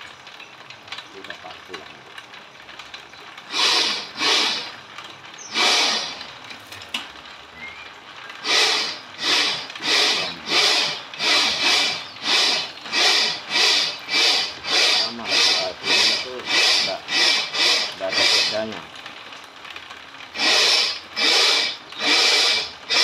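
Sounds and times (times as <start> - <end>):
bamboo strips scraping through machine: 3.4 - 4.9, 5.5 - 6.5, 8.4 - 19.0, 20.3 - 23.0.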